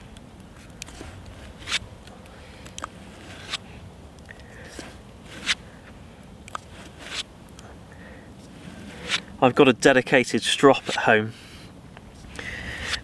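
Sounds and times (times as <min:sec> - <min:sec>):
axe scraping on leather strop: 0:00.8 - 0:01.8, 0:02.8 - 0:03.6, 0:04.7 - 0:05.6, 0:06.5 - 0:07.3, 0:08.5 - 0:09.3, 0:10.7 - 0:11.2.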